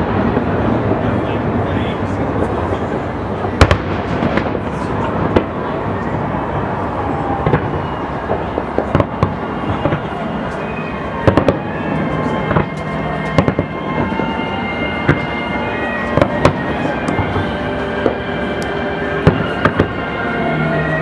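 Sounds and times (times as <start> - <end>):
fireworks bursting: 0.0 - 21.0.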